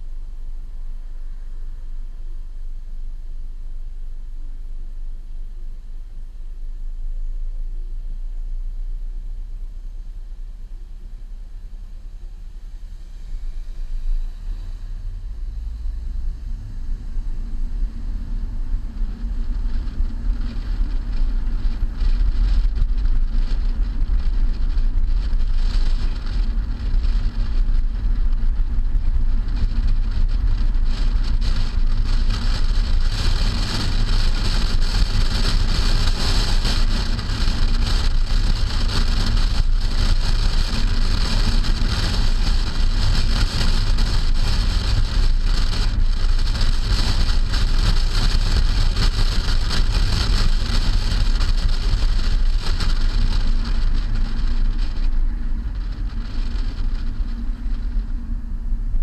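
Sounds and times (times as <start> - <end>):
road and tyre rumble: 0.0 - 59.0
wind rushing over camera: 12.9 - 59.0.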